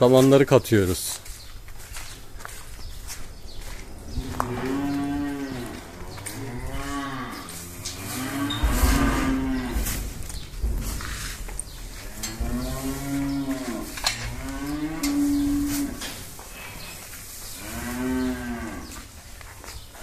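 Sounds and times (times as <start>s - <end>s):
cows mooing: 3.7s - 19.1s.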